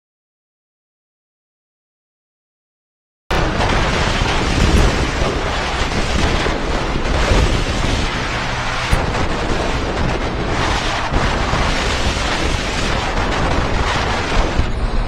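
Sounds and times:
wind buffeting microphone: 3.3 - 15.0.

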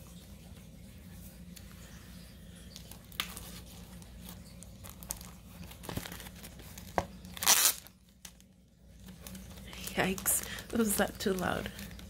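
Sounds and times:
paper rustling: 2.8 - 12.0
loud paper crinkle: 3.0 - 8.0.

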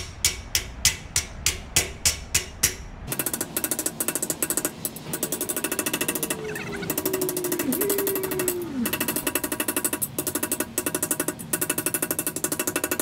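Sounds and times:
hammer striking steel panel: 0.0 - 5.7
fast mechanical chattering: 3.1 - 13.0.

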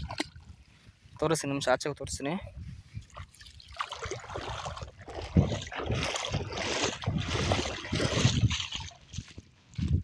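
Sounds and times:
water sloshing and splashing: 0.0 - 0.7, 3.0 - 9.9
heavy splashes: 3.6 - 9.0.

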